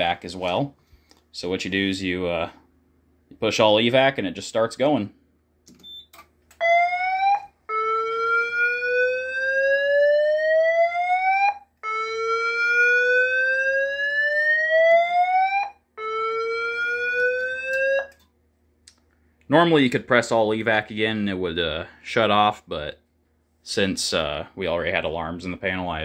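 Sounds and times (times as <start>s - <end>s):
fire alarm whoop tone: 6.6s - 18.2s.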